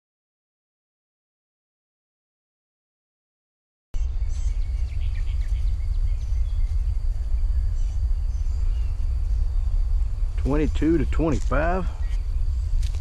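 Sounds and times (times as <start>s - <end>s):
bird chirps: 4.0s - 13.0s
faint high insect drone: 4.0s - 13.0s
wind rumble on microphone: 4.0s - 13.0s.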